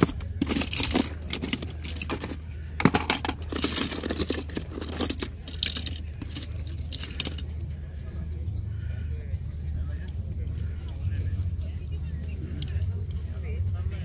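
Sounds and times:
toy cars clattering: 0.0s - 7.8s.

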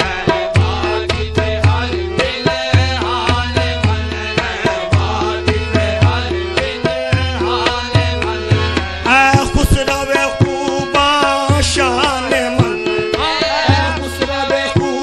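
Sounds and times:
tabla beat: 0.0s - 15.0s.

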